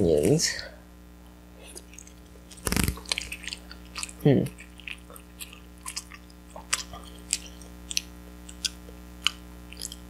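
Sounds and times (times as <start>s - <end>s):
person chewing: 1.6s - 10.0s.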